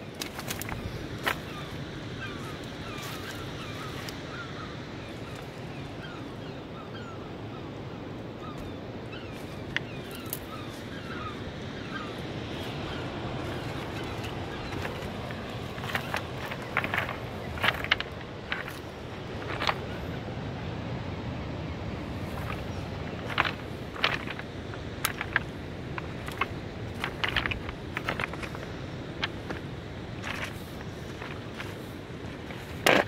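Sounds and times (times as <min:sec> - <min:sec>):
birds chirping: 0:00.0 - 0:20.2, 0:22.1 - 0:33.0
steady background rush: 0:00.0 - 0:33.0
footsteps on pebbles: 0:00.1 - 0:01.7, 0:12.5 - 0:20.1, 0:22.1 - 0:33.0.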